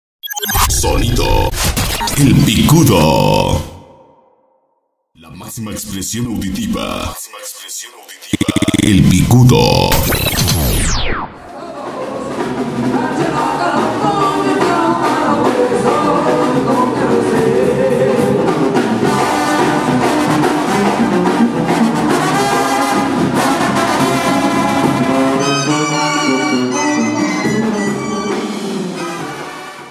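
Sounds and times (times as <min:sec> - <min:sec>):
brass band music: 0:19.2 - 0:27.3, 0:29.0 - 0:29.9.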